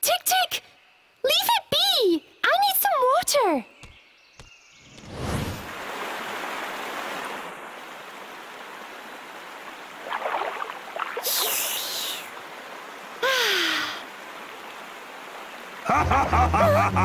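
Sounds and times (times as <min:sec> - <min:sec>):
stream running: 0:05.1 - 0:17.0
water splashes from scooping: 0:09.9 - 0:11.9.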